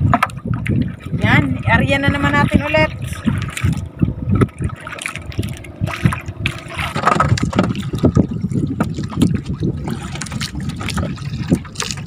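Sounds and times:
water lapping against boat hull: 0.0 - 12.0.

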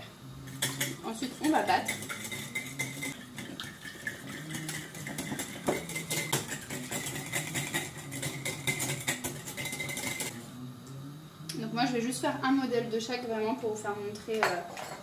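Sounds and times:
steady low hum: 0.0 - 15.0
whisk clicking against glass bowl: 0.6 - 10.3.

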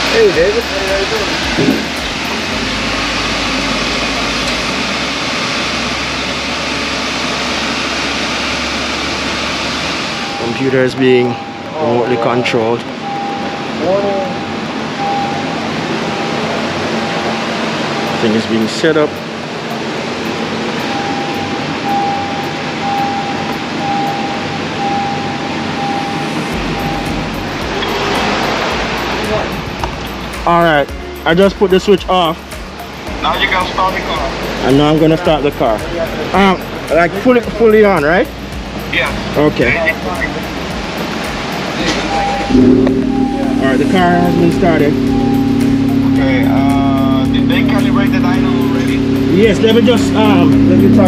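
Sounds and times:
loud rushing fan noise: 0.0 - 51.0
high electronic beep: 10.2 - 17.4, 20.8 - 51.0.

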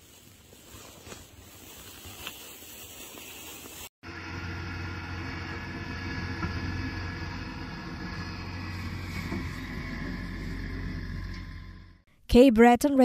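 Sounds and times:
tractor engine running: 4.0 - 12.0.

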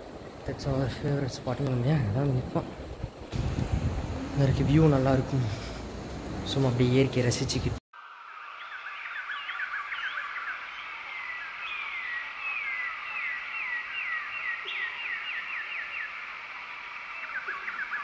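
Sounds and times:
bird chirps: 8.0 - 16.3, 17.0 - 18.0
background bird chorus: 8.0 - 18.0.

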